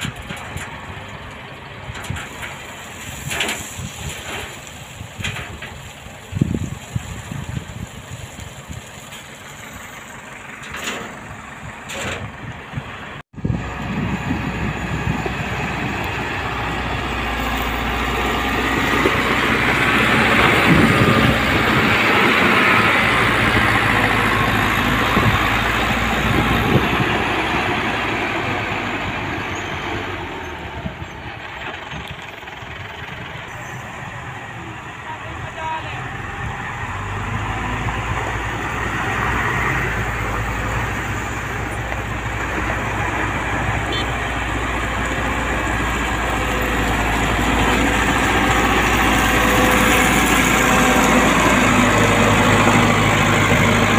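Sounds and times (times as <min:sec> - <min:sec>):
diesel engine running: 0:00.0 - 0:53.9
dump truck engine: 0:00.0 - 0:53.9
blade scraping gravel: 0:01.9 - 0:12.2.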